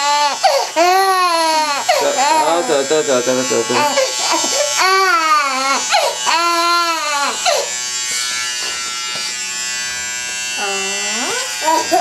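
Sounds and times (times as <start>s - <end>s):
infant crying: 0.0s - 7.8s, 10.6s - 12.0s
electric hair clippers buzzing: 0.0s - 12.0s.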